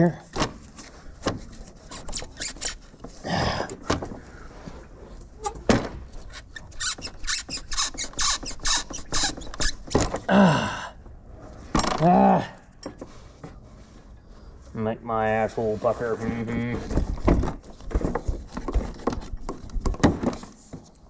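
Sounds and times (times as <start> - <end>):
grunts of effort: 3.2 - 3.8, 10.3 - 11.0, 12.0 - 12.7.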